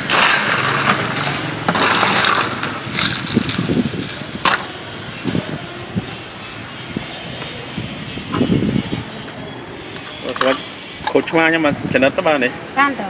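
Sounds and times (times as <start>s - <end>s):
crushed ice crunching and rattling: 0.0s - 4.8s.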